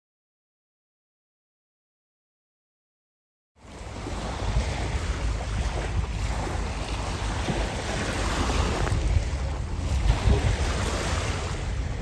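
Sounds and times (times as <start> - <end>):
water washing on bay: 3.6 - 12.0
wind buffeting microphone: 3.6 - 12.0.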